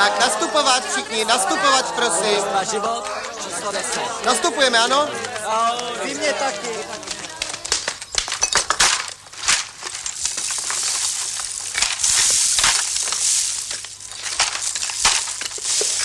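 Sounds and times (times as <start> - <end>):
crackling and rustling clicks: 6.9 - 16.0
steady hiss: 8.8 - 16.0.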